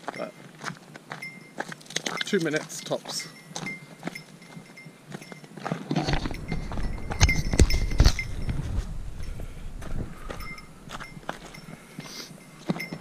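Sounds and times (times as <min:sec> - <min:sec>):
footsteps crunching on leaves: 0:00.0 - 0:12.8
heavy thudding steps: 0:03.6 - 0:13.0
low rumble: 0:06.1 - 0:11.6.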